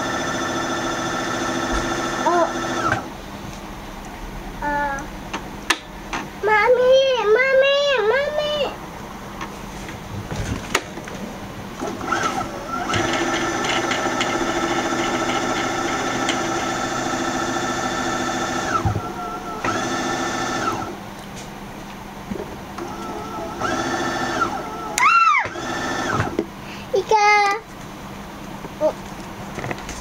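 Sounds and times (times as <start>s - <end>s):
sewing machine motor whine: 0.0s - 3.1s, 11.8s - 21.0s, 22.8s - 26.4s.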